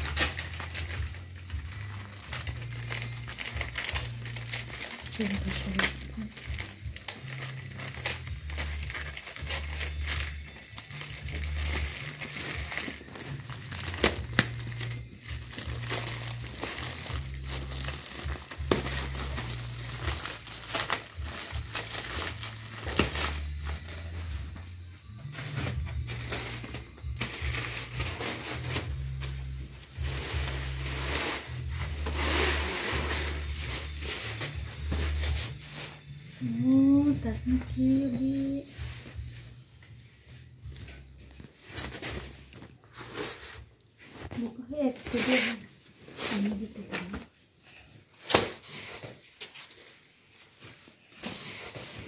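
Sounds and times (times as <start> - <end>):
plastic packaging crinkling: 0.0 - 36.1, 40.6 - 44.5
background music: 0.0 - 47.6.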